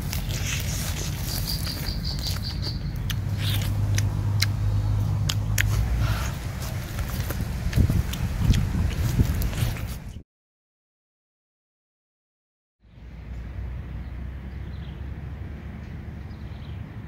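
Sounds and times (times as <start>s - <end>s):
biting and chewing chicken: 0.0s - 10.1s
steady low rumble: 0.0s - 10.2s.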